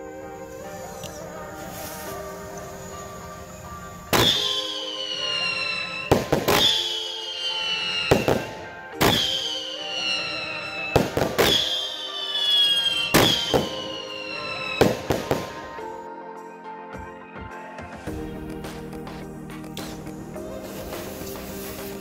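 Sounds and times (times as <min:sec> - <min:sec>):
falling whistling tone: 0:00.0 - 0:16.0
background music: 0:00.0 - 0:22.0
fireworks bangs: 0:00.8 - 0:16.0.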